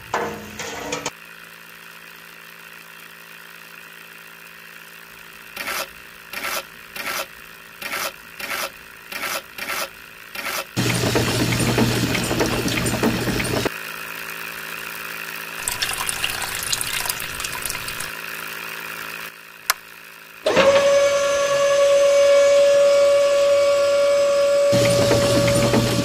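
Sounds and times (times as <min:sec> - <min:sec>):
small gear motor whining: 0:05.3 - 0:11.7, 0:20.4 - 0:26.0.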